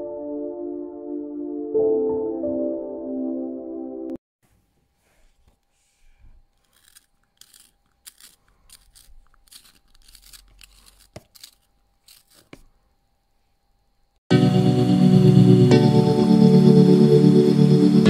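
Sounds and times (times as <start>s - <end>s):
plastic sharpener crackling and scraping: 6.2s - 12.8s.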